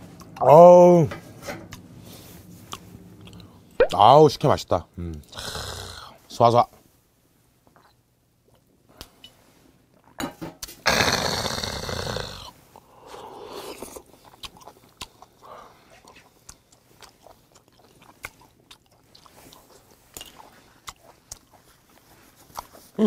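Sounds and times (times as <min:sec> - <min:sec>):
chewing with sharp clicks: 0:02.7 - 0:03.6, 0:13.8 - 0:22.8.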